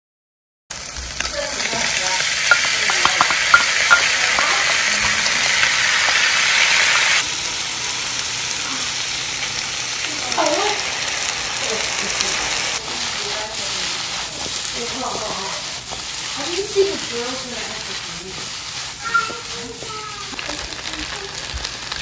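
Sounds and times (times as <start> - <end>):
food sizzling in a wok: 0.7 - 22.0.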